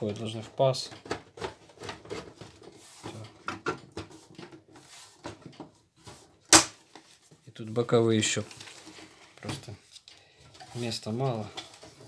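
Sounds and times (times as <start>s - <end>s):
plastic cover scraping and knocking: 0.1s - 7.1s, 10.5s - 12.0s.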